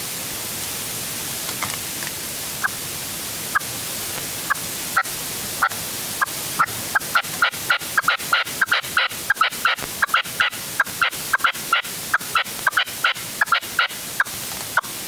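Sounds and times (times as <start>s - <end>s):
background hiss: 0.0s - 15.0s
partridge calling: 4.5s - 14.9s.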